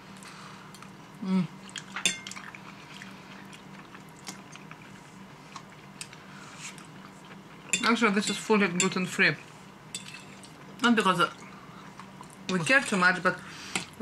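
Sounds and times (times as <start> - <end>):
person humming: 1.2 - 1.6
forks clinking on plates: 10.0 - 10.5.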